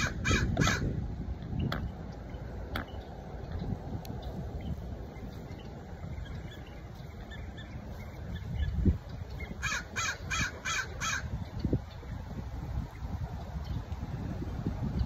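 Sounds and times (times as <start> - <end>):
crow cawing: 0.0 - 0.9, 9.6 - 11.3
wind rumble on microphone: 0.0 - 15.0.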